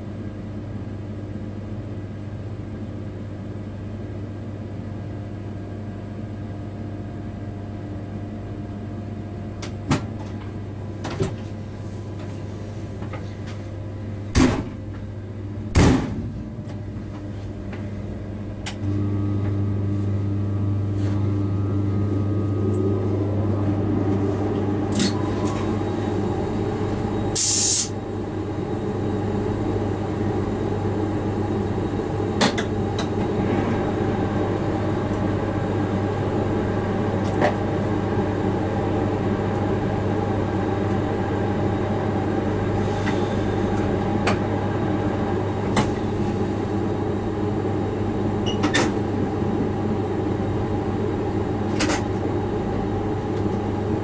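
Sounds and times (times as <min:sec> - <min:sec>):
locomotive cab running hum: 0:00.0 - 0:54.0
short hiss: 0:27.4 - 0:27.9.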